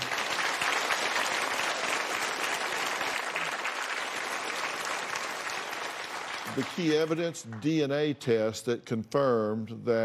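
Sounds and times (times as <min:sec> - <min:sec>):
studio audience applauding: 0:00.0 - 0:07.9.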